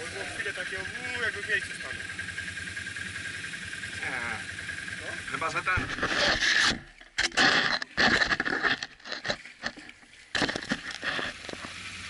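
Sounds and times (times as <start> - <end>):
scraping and rattling on camera: 5.7 - 11.8.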